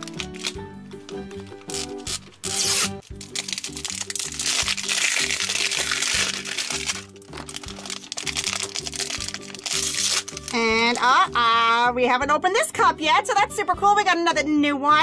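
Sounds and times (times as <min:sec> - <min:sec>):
foil bag tearing: 0:00.0 - 0:00.7, 0:01.6 - 0:11.1
cellophane wrapper crinkling: 0:00.0 - 0:11.1
cheerful background music: 0:00.0 - 0:15.0.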